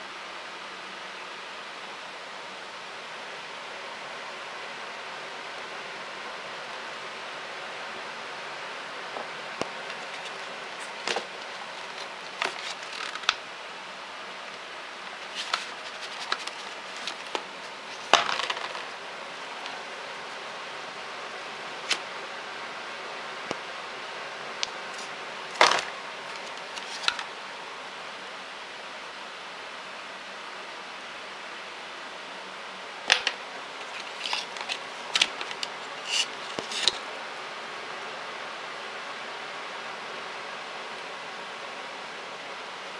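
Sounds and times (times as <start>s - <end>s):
paper rustling: 9.8s - 13.4s, 15.1s - 18.9s, 24.9s - 27.3s, 33.8s - 37.0s
cardboard box clicks and scrapes: 15.1s - 18.8s, 33.8s - 37.0s.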